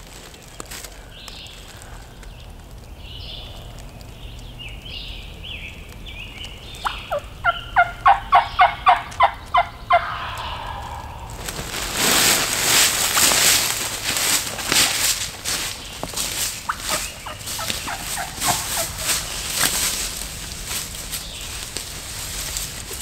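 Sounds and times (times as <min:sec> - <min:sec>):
crawling through dry leaves: 0:00.0 - 0:04.3, 0:08.0 - 0:23.0
turkey yelps: 0:06.8 - 0:11.5, 0:16.7 - 0:19.6.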